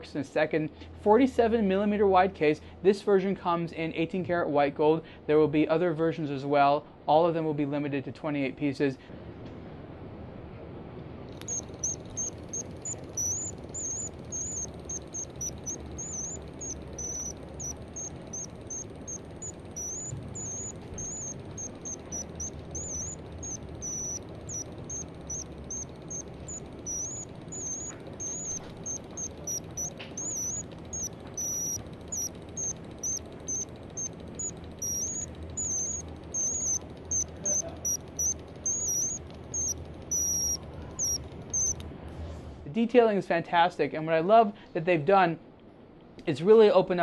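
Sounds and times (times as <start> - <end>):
mechanical bird chirping: 11.4 - 41.8.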